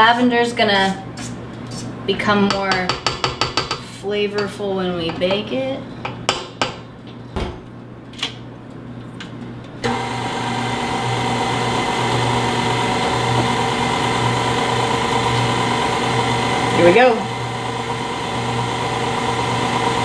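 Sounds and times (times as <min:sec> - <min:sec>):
stand mixer motor humming: 0:09.8 - 0:20.0.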